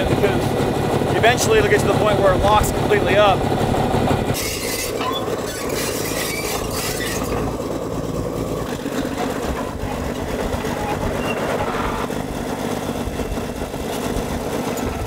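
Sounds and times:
bulldozer diesel engine under load: 0.0s - 15.0s
steel tracks clanking and squealing: 1.1s - 12.2s.

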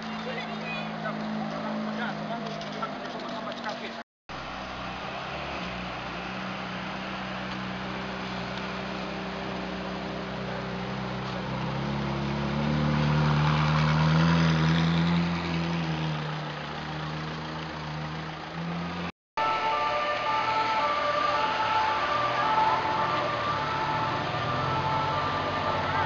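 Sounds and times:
sports car engine: 0.0s - 19.1s.

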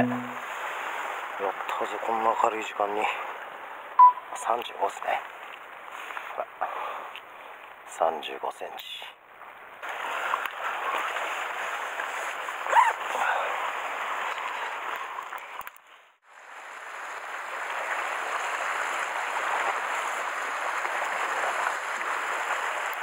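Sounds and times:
surf against rocks: 0.0s - 3.7s, 9.8s - 15.8s, 16.4s - 23.0s.

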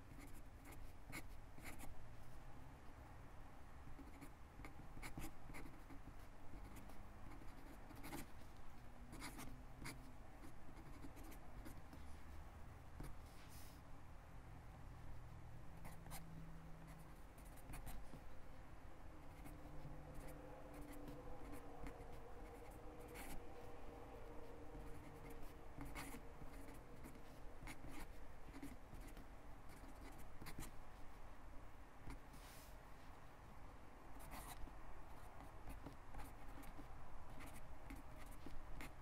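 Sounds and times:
pen scratching on paper: 0.0s - 1.9s, 3.8s - 8.5s, 9.1s - 12.0s, 15.8s - 16.3s, 16.9s - 18.3s, 19.2s - 31.1s, 34.2s - 39.0s.

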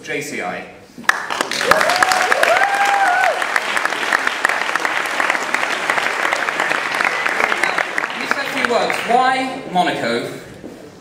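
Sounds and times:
audience applauding: 1.0s - 9.5s.

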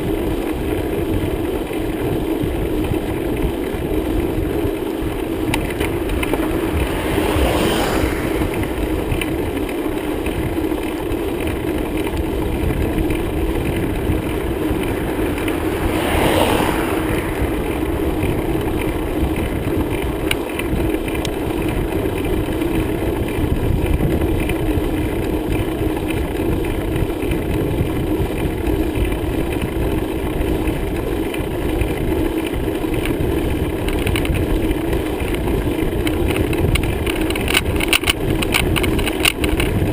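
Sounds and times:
bicycle rolling: 0.0s - 39.9s
constant hum: 0.0s - 39.9s
wind: 0.0s - 39.9s
low rumble: 2.8s - 24.3s.

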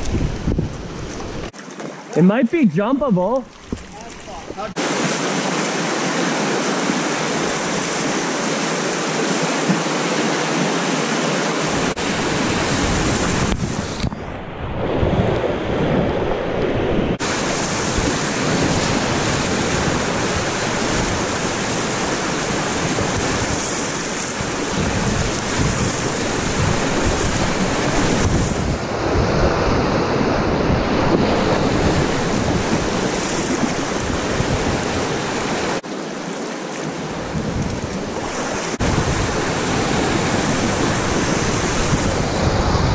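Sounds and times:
wind buffeting microphone: 0.0s - 1.5s, 11.7s - 35.8s, 37.2s - 42.9s
river rapids rushing and splashing: 3.8s - 13.4s, 17.2s - 37.4s, 38.0s - 42.9s.

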